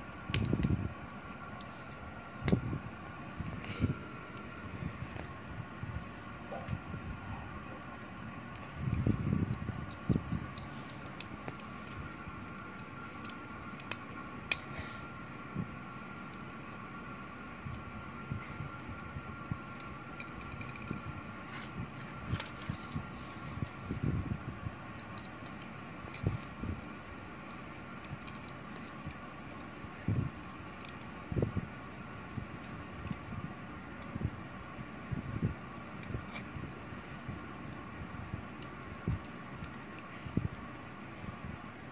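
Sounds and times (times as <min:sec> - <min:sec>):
low rumble of hand movement: 0:00.0 - 0:14.4, 0:15.0 - 0:26.9
steady background noise: 0:00.0 - 0:41.9
steady faint hum: 0:00.0 - 0:41.9.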